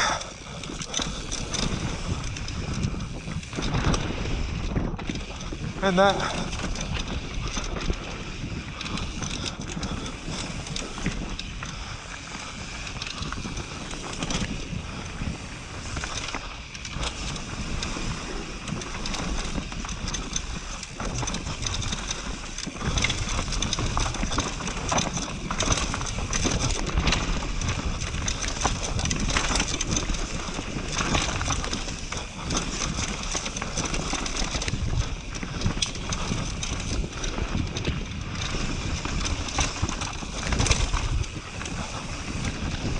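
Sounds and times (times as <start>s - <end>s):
bike rattling and knocking: 0.0s - 42.9s
bike tyres on loose dirt and stones: 0.0s - 42.9s
wind noise on microphone: 0.0s - 42.9s.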